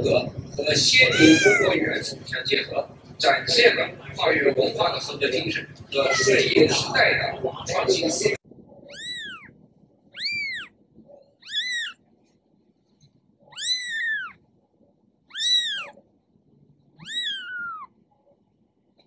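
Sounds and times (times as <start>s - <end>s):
kitten mewing: 1.0s - 1.8s, 6.0s - 6.6s, 8.8s - 9.5s, 10.2s - 10.7s, 11.4s - 12.0s, 13.5s - 14.4s, 15.3s - 16.0s, 17.0s - 17.9s.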